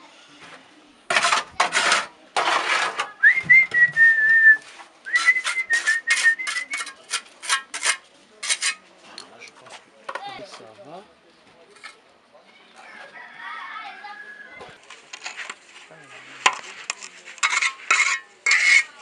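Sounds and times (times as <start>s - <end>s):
trowel scraping mortar: 1.1s - 3.2s, 4.6s - 8.9s, 14.9s - 19.0s
person whistling: 3.2s - 6.7s.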